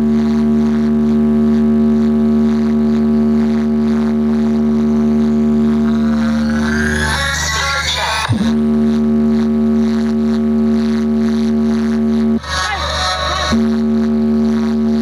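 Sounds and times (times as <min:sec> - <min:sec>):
loud electronic drone: 0:03.2 - 0:10.1, 0:10.9 - 0:15.0.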